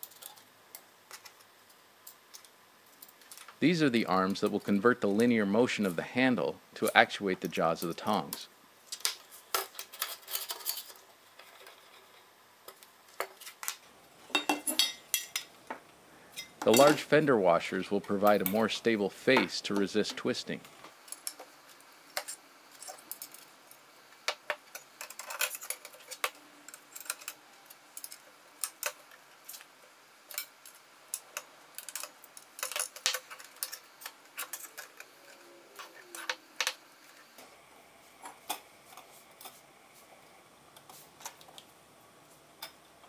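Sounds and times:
metal parts clinking: 0:31.8 - 0:33.8.

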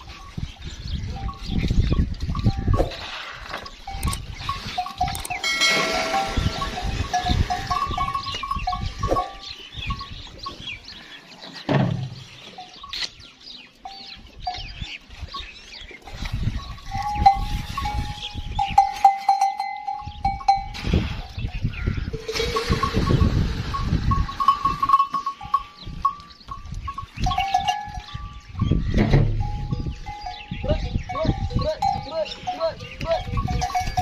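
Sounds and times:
metal bell clinking: 0:03.9 - 0:10.2, 0:16.7 - 0:20.8, 0:22.2 - 0:28.4, 0:33.2 - 0:34.0.

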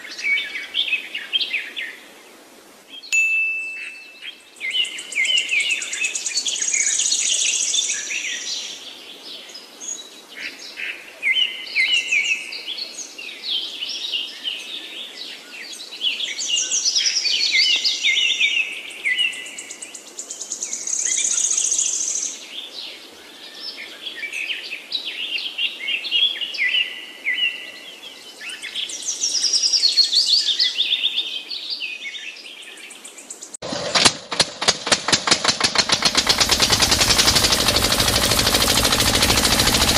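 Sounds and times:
small engine rapid knocking: 0:33.6 - 0:39.9.

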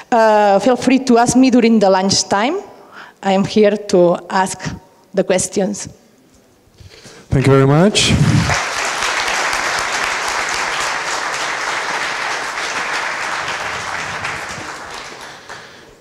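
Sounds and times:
audience applauding: 0:08.3 - 0:16.0.

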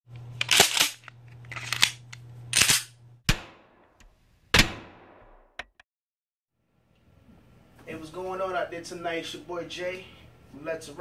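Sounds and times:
shotgun blasts with echo: 0:03.3 - 0:03.8, 0:04.6 - 0:05.4.

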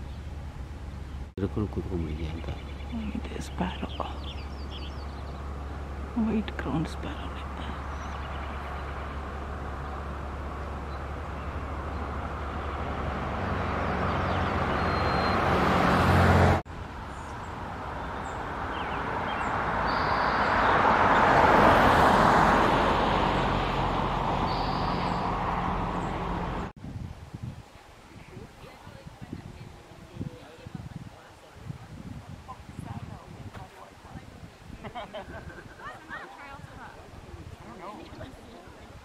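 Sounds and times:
low engine hum: 0:00.0 - 0:26.8
passing vehicles rushing: 0:00.0 - 0:26.8.

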